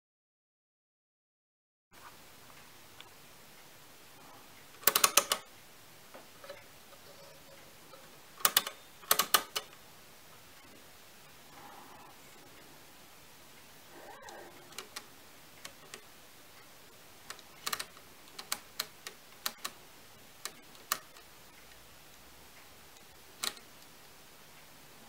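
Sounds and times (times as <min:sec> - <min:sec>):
calculator levers clicking: 0:04.8 - 0:05.5, 0:06.4 - 0:09.8, 0:14.2 - 0:16.0, 0:17.3 - 0:19.8, 0:20.4 - 0:21.3, 0:23.4 - 0:23.7.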